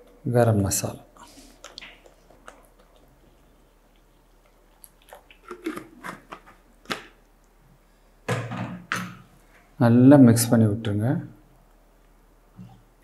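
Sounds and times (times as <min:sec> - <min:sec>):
thick gravy popping and spluttering: 0:01.3 - 0:07.4.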